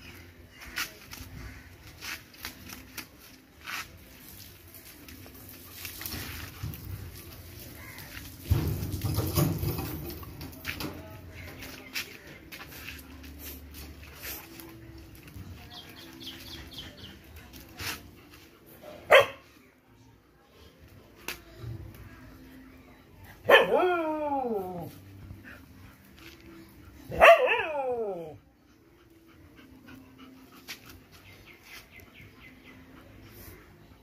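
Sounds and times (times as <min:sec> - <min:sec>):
dog barking: 0:19.1 - 0:19.4, 0:23.5 - 0:23.8, 0:27.1 - 0:27.8.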